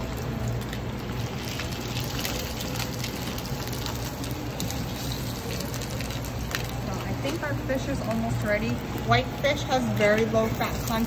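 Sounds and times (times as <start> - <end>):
fish frying in oil: 0.0 - 11.0
low steady hum: 0.0 - 11.0.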